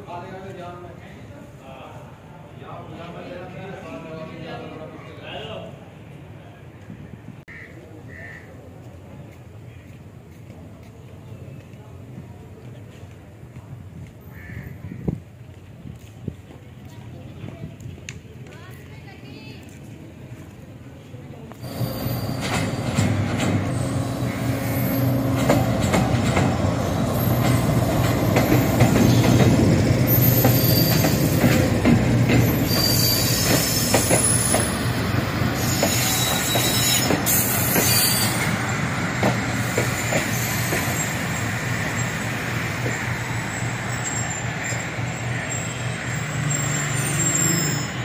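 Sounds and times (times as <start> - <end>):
train rumble: 15.2 - 48.0
high wheel squeal: 21.6 - 25.7, 30.1 - 31.4, 32.4 - 38.9, 39.9 - 48.0
wheels clacking over rail joints: 21.7 - 41.6.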